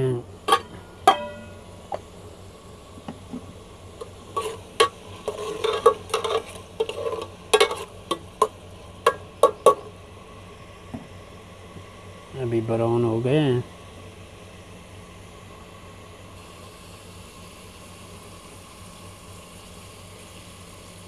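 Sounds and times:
onions sizzling: 0.0 - 10.1
pot lid metallic ring: 0.5 - 1.6
spoon scraping metal pot: 4.3 - 8.5.

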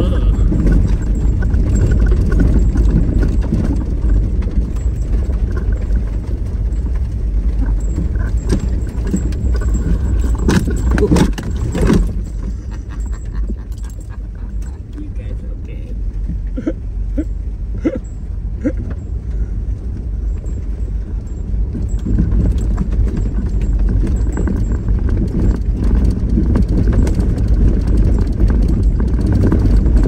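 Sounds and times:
loose things rattling: 0.0 - 16.6
vehicle rumbling over rough ground: 0.0 - 30.0.

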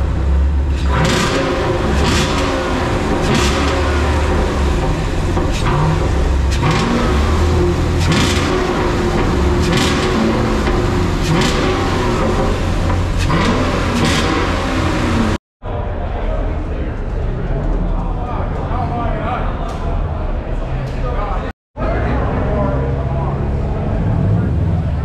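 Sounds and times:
car engines revving: 0.0 - 15.4, 21.8 - 25.0.

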